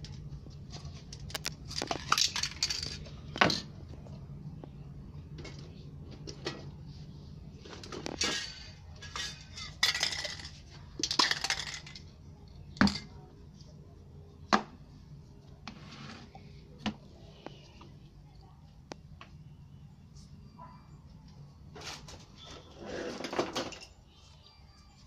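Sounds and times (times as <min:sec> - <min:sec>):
metal cans and tools clinking: 0:00.8 - 0:03.7, 0:07.7 - 0:12.0, 0:21.8 - 0:23.9.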